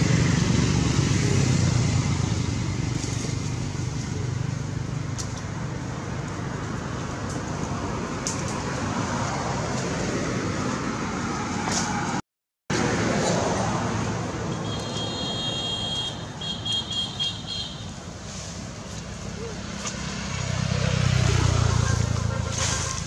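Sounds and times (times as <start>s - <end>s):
vehicle engine rumble: 0.0s - 23.0s
steady traffic hiss: 13.8s - 23.0s.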